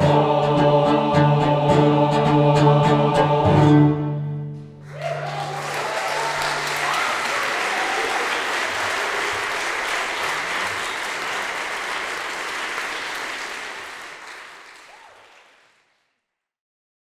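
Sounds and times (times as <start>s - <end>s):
audience applauding: 4.8s - 16.1s.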